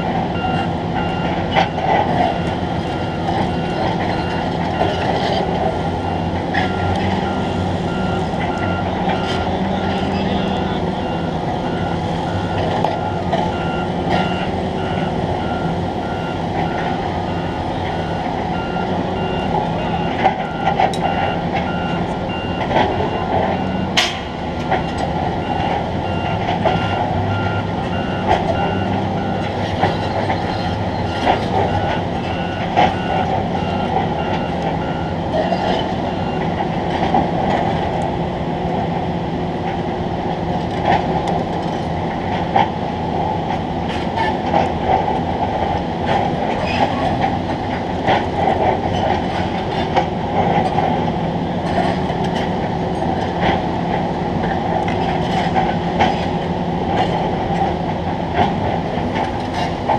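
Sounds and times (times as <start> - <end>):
construction machinery rumbling: 0.0 - 59.9
reversing alarm beeping: 0.3 - 36.6.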